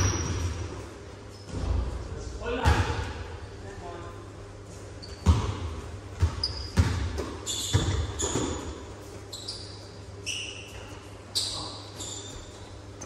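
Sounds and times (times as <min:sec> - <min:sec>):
basketball bouncing on gym floor: 0:00.0 - 0:00.8, 0:02.6 - 0:03.2, 0:05.0 - 0:08.9
sneaker squeaks: 0:00.0 - 0:01.9, 0:04.8 - 0:13.0.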